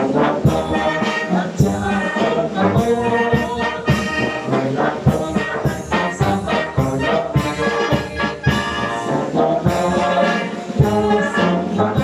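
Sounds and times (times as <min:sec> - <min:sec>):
brass band playing: 0:00.0 - 0:12.0
mixed choir singing: 0:00.0 - 0:12.0
drum strikes: 0:09.6 - 0:11.3.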